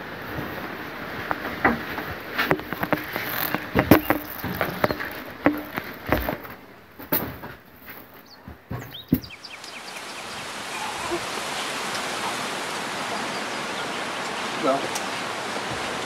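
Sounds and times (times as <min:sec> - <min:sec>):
people moving and sitting down: 0:00.0 - 0:09.4.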